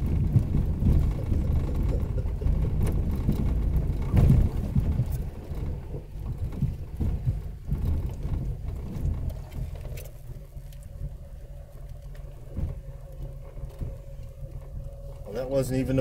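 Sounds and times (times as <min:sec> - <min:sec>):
vehicle body bumps and knocks: 0:00.0 - 0:11.2
faint steady hum: 0:00.0 - 0:16.0
low engine rumble: 0:00.0 - 0:16.0.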